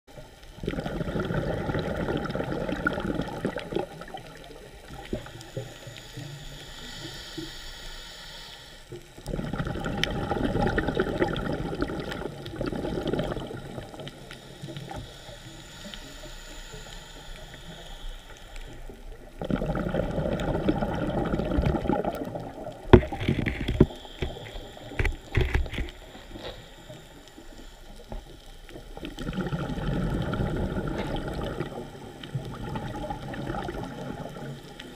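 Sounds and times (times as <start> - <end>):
exhaled bubbles rushing: 0.6 - 5.4, 9.2 - 14.3, 19.2 - 23.9, 28.8 - 34.9
regulator inhale hissing: 2.2 - 9.4, 13.3 - 19.4, 23.0 - 29.2.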